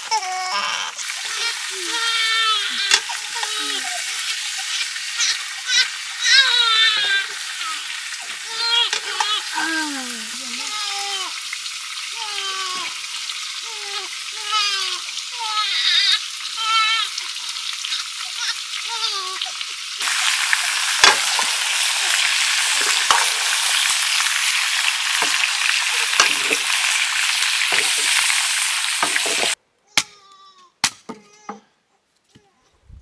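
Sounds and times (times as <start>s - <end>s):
meat sizzling in a wok: 0.0s - 29.6s
child's voice: 1.7s - 2.1s, 2.7s - 4.0s, 9.5s - 11.3s.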